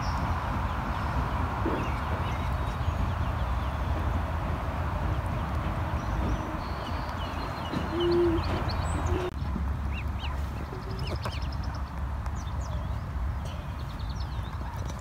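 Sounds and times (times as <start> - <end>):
ducklings peeping: 5.0 - 14.8.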